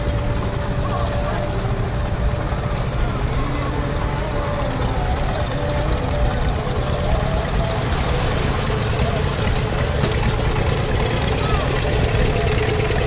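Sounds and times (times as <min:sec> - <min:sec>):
engine idling: 0:00.0 - 0:13.0
people's voices: 0:00.0 - 0:13.0.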